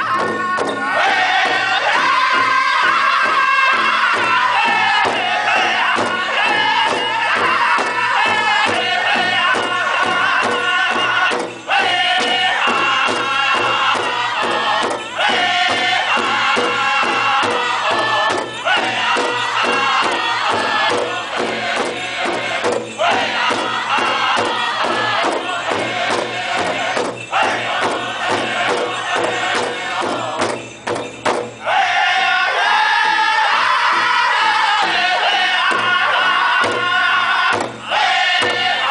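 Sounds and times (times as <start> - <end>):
high lead voice singing: 0.0 - 30.6
men singing in high unison: 0.0 - 30.8, 31.6 - 38.9
large drum beating fast: 0.0 - 31.6, 33.0 - 38.9.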